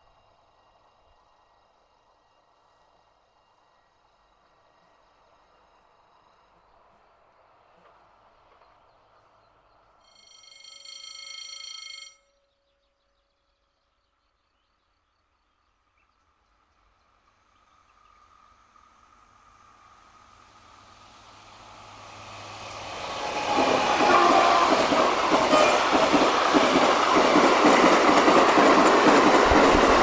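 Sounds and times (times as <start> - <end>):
diesel locomotive engine approaching: 0.0 - 10.0, 15.8 - 30.0
train horn: 23.2 - 26.2.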